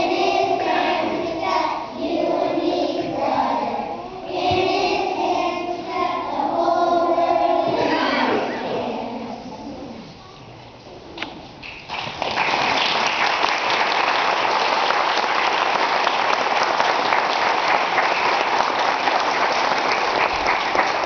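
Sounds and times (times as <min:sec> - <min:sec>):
audience applauding: 0:11.7 - 0:21.0.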